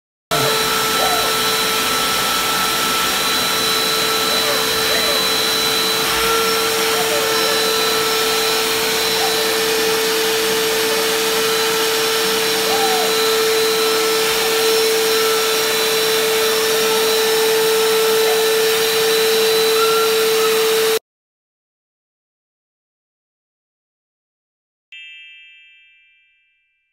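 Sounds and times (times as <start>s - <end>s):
vacuum cleaner motor running: 0.3s - 21.0s.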